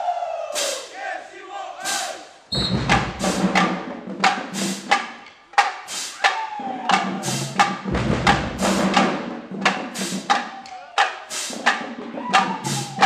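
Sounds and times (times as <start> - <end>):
snare and tenor drums: 1.8 - 13.0
bass drum thuds: 2.5 - 4.2, 7.7 - 9.2.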